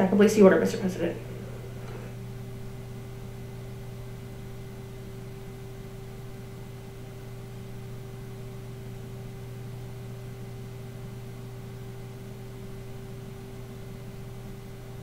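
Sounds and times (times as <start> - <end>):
faint constant tone: 0.0 - 15.0
low hum: 0.0 - 15.0.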